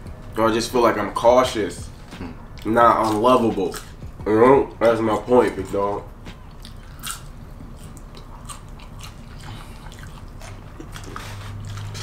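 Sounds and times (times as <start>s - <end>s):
soft chewing: 6.4s - 12.0s.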